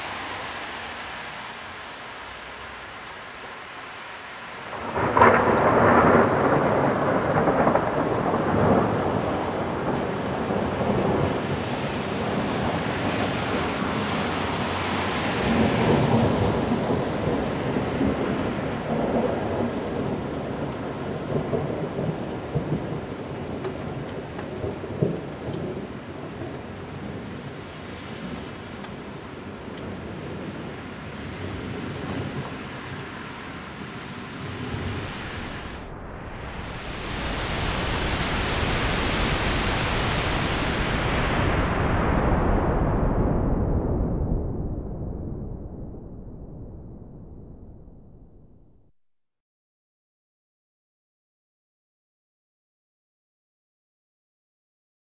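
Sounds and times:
thunder rumbling: 0.0s - 27.6s, 31.4s - 48.8s
thunder crackle: 4.6s - 27.6s, 31.8s - 48.9s
thunder crack: 4.7s - 20.1s, 33.7s - 48.8s.

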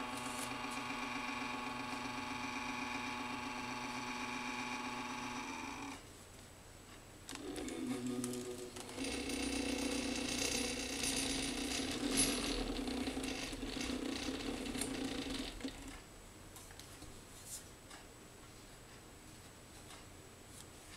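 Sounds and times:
stepper motors humming: 0.0s - 6.0s, 7.3s - 16.0s.

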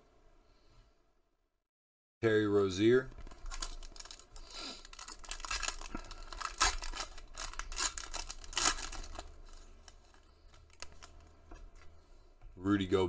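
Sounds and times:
foil wrapper tearing and crinkling: 3.1s - 11.3s.

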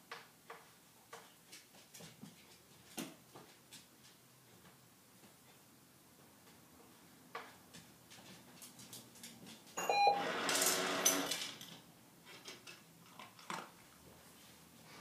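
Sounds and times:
dog footsteps clicking: 0.6s - 5.4s, 7.4s - 9.8s.

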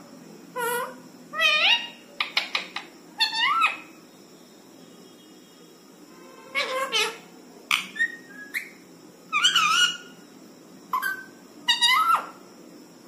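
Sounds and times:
parakeet short calls: 6.4s - 8.7s.

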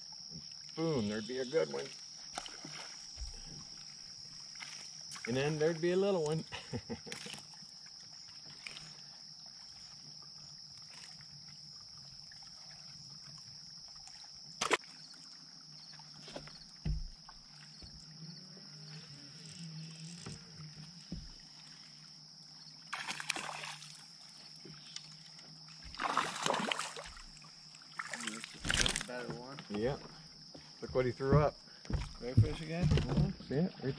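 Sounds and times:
fish splashing at the surface: 2.3s - 3.6s, 14.0s - 15.3s, 22.8s - 24.2s, 25.8s - 29.2s.

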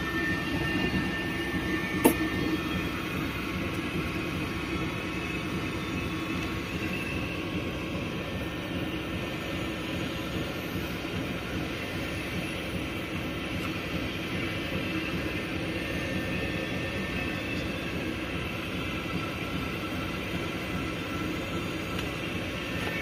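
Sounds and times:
faint high machine whine: 0.0s - 23.0s
machine hum and rumble: 0.0s - 23.0s.

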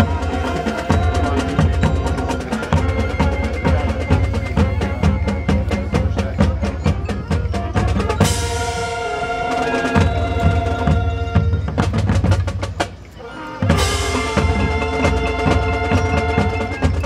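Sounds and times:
marching drumline playing: 0.0s - 17.0s.

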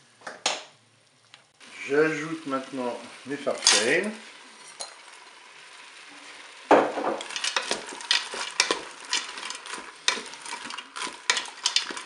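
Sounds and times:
food sizzling faintly: 0.9s - 12.0s
dry pasta rattling against pot: 6.9s - 12.0s.

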